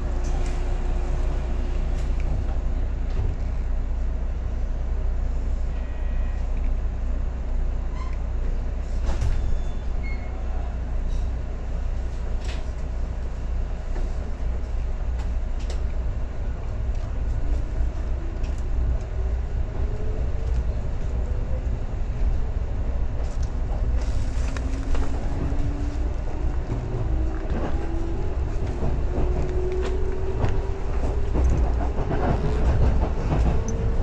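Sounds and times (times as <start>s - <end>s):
train carriage rumble: 0.0s - 34.0s.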